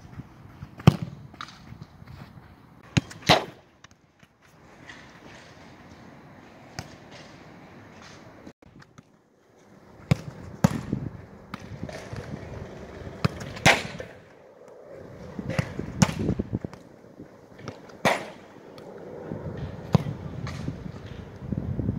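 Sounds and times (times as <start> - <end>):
football being kicked: 0.8 - 1.2, 10.1 - 11.6.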